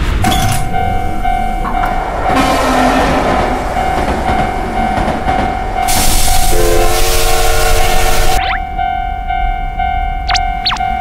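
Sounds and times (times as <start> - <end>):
train rattling past: 0.0 - 10.1
level crossing warning bell: 0.4 - 2.5, 7.6 - 11.0
train horn: 2.3 - 4.4, 5.8 - 8.4.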